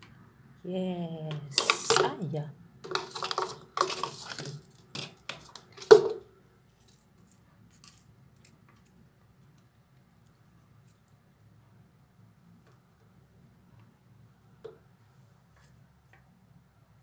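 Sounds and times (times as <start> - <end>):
chopsticks clicking and knocking: 1.3 - 2.2, 2.8 - 6.2.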